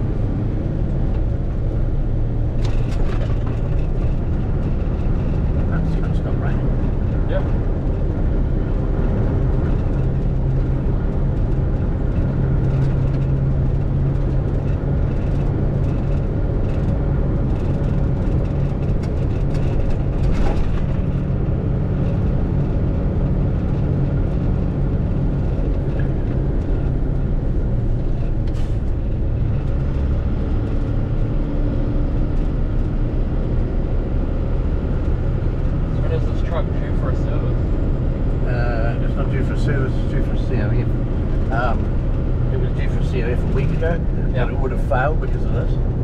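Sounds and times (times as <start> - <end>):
diesel engine droning: 0.0 - 46.0
tyres on wet road: 0.0 - 46.0.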